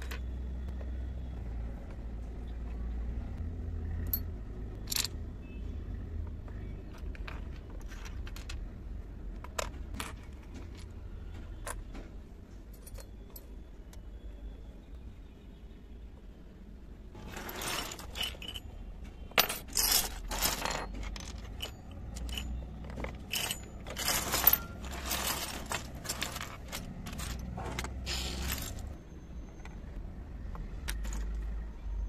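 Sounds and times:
small utensils clinking: 0:19.4 - 0:28.9.

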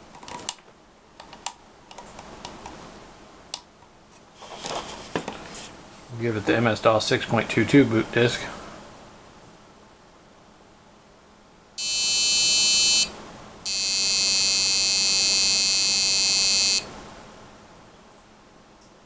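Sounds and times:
buzzy electronic beeps: 0:11.8 - 0:13.1, 0:13.7 - 0:16.9.

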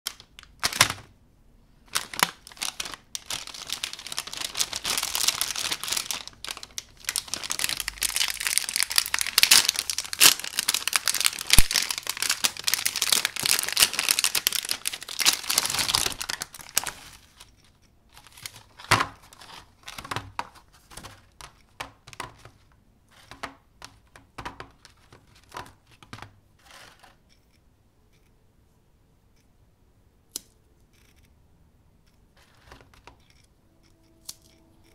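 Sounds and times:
plastic wrapper crinkling and tearing: 0:00.1 - 0:01.1, 0:01.8 - 0:22.6.

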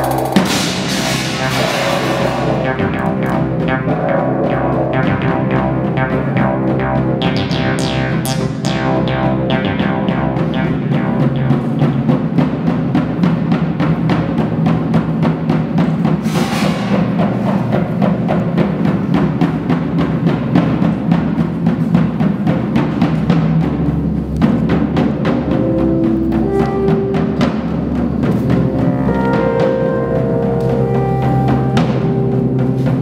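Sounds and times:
electronic music: 0:00.0 - 0:12.2.

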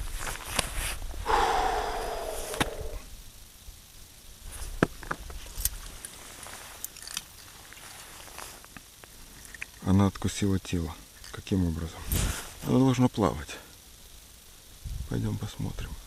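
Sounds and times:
falling tone: 0:01.3 - 0:03.1.

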